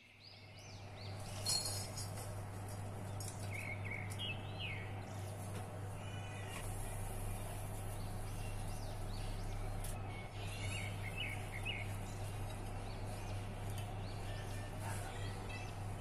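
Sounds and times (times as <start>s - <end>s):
birds chirping: 0.0s - 16.0s
steady low hum: 0.1s - 16.0s.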